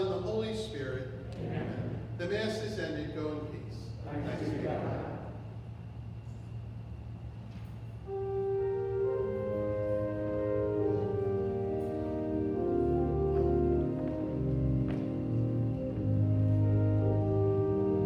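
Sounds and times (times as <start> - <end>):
faint low hum: 0.0 - 18.0
slow sustained instrumental chords: 7.4 - 18.0.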